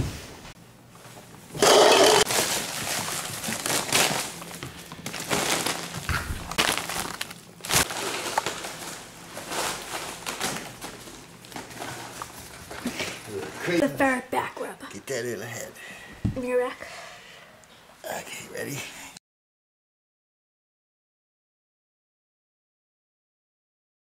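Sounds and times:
plastic cups clattering: 1.6 - 2.6
crinkly foil ducting rustling: 2.2 - 13.8.

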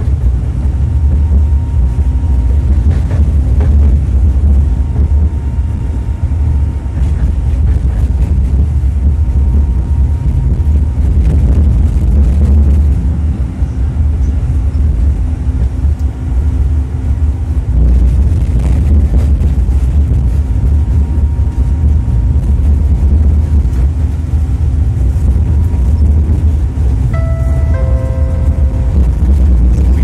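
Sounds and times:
tram rumbling on rails: 0.0 - 30.0
faint steady hum: 27.1 - 30.0.

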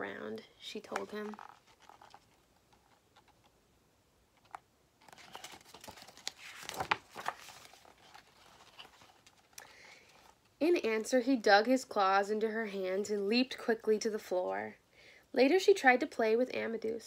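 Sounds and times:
book page rustling: 0.7 - 3.6, 4.4 - 10.6.

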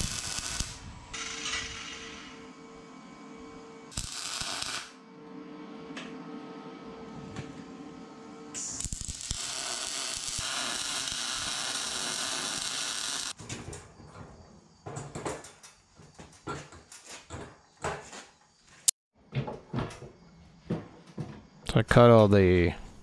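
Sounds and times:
arc welding sizzle: 0.0 - 2.5, 3.9 - 5.0, 8.5 - 13.4.

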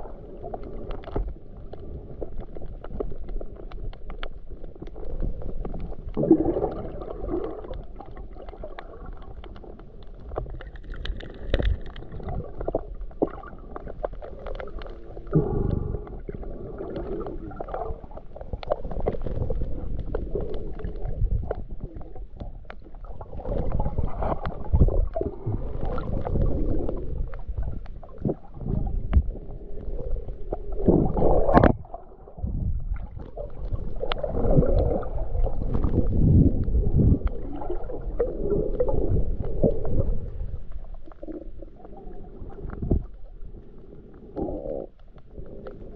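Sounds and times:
muffled underwater gurgling: 0.0 - 45.9.

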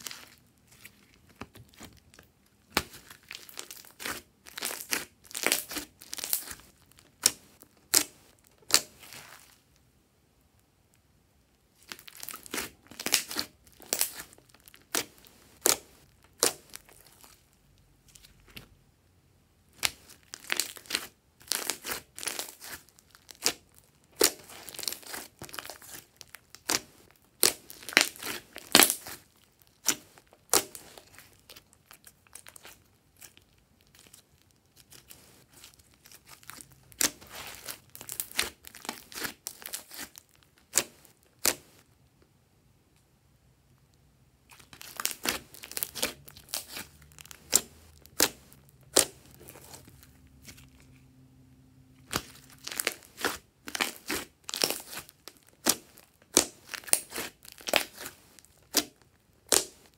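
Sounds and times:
sticky slime pops and crackles: 44.5 - 49.5, 52.0 - 59.9.

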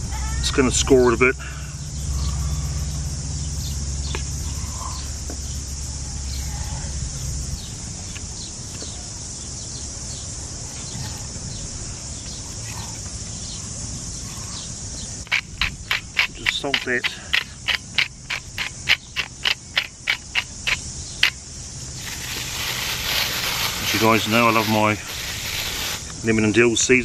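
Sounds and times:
low rumble: 0.0 - 8.8
insect chorus: 0.0 - 27.0
bird chirps: 1.7 - 21.4.

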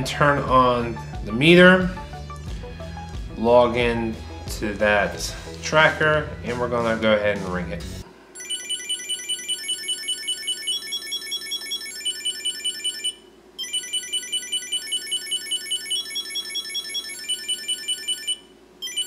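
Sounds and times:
tracker alarm high-pitched beeps: 8.4 - 19.0.

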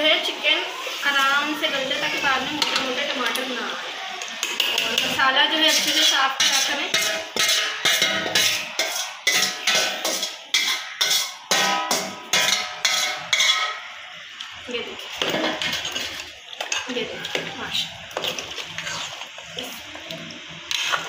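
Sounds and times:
stirring in a pot: 0.7 - 21.0
metal spoon knocking on steel bowl: 6.4 - 13.7.

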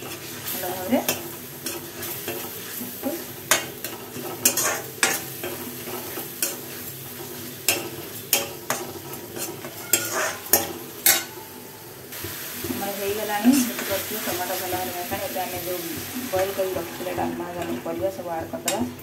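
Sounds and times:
vegetables sizzling in oil: 0.0 - 19.0
spoon scraping metal pan: 1.0 - 11.6.

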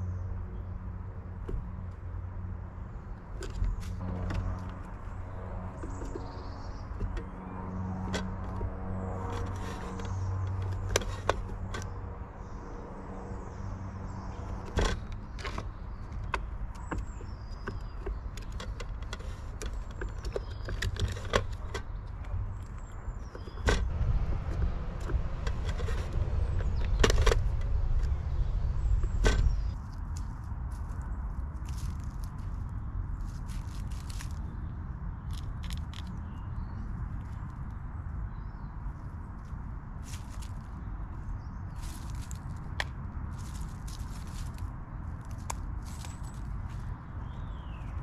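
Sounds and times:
passing motor vehicle rumble: 0.0 - 48.0
sharp knocks and clicks: 14.3 - 28.2.

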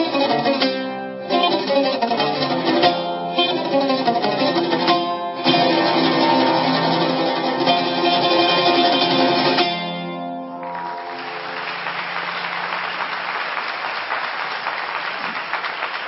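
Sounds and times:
oud playing: 0.0 - 12.8
audience applauding: 10.5 - 16.0.

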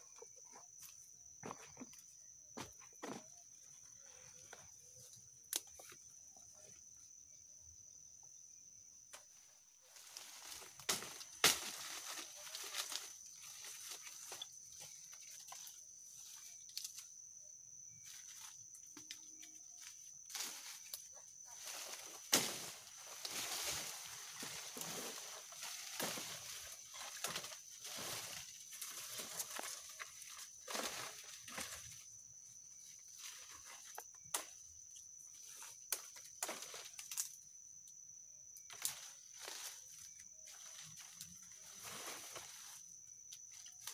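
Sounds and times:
high-pitched insect drone: 0.0 - 43.9
leaves rustling: 9.8 - 17.0, 20.3 - 32.1
dry leaves crackling and rustling: 10.0 - 14.4.

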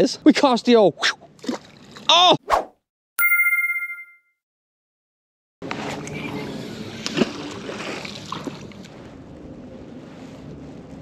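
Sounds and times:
river water moving: 5.6 - 9.2.

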